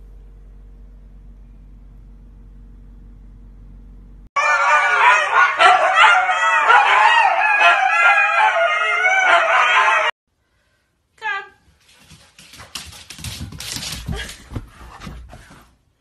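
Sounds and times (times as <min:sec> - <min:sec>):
faint low hum: 0:00.0 - 0:04.3
huskies howling: 0:04.4 - 0:10.2.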